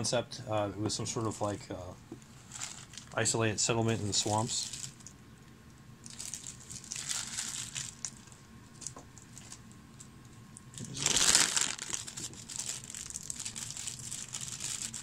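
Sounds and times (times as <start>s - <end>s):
plastic bags crinkling: 2.4s - 3.2s, 3.9s - 5.1s, 6.0s - 10.1s, 10.7s - 15.0s.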